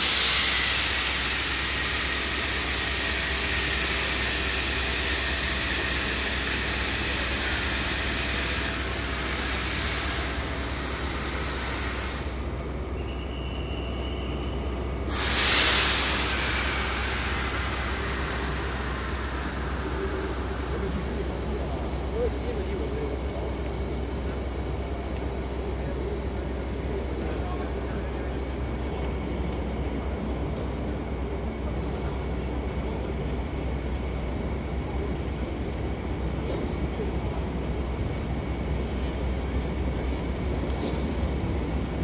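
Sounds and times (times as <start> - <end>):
train air brakes hissing: 0.0 - 21.9
faint thin whistle: 13.0 - 14.7.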